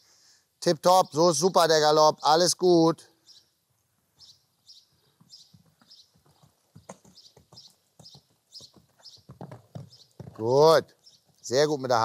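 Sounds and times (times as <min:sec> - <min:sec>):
horse hoofbeats on sand: 0:05.0 - 0:11.8.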